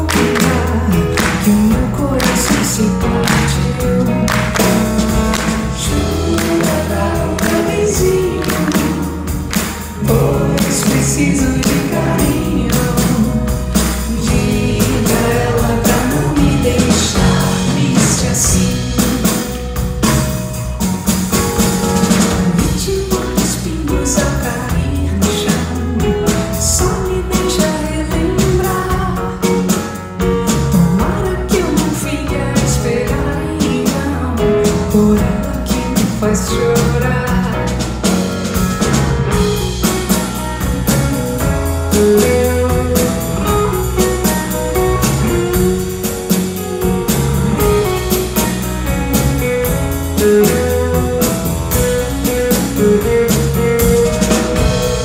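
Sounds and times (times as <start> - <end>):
woman singing: 0.0 - 4.7, 5.7 - 19.6, 22.6 - 29.9, 30.7 - 37.8
bass guitar: 0.0 - 55.0
drum kit beat: 0.0 - 55.0
electric guitars: 0.0 - 55.0.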